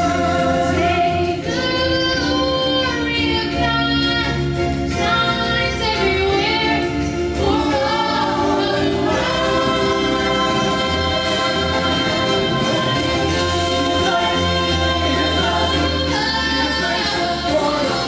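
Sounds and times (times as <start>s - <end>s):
church choir singing: 0.0s - 1.5s, 7.4s - 18.0s
musical accompaniment: 0.0s - 18.0s.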